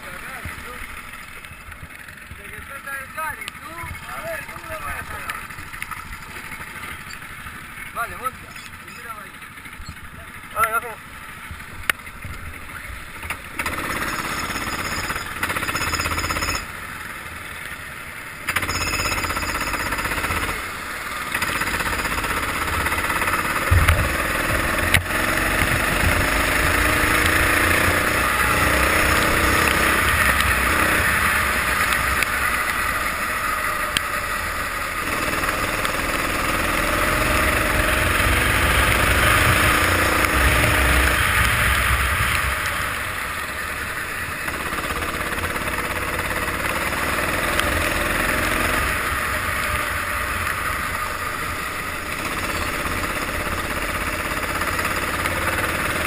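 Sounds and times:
kart engine accelerating: 12.6s - 17.5s, 18.4s - 56.0s.

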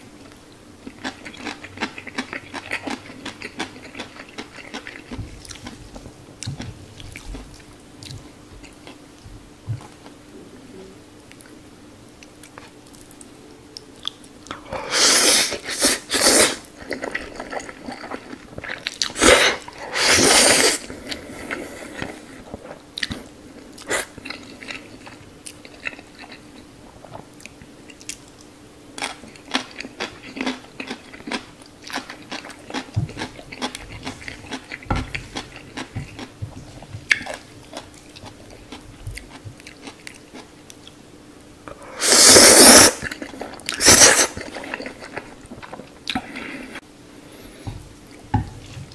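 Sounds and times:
slurping noodles: 14.8s - 16.7s, 19.1s - 22.5s, 41.9s - 45.0s
wet chewing: 27.0s - 41.0s, 42.2s - 46.6s.

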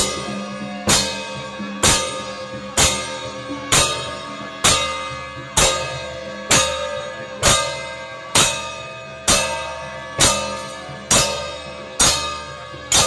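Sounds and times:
gong strokes ringing: 0.0s - 13.0s.

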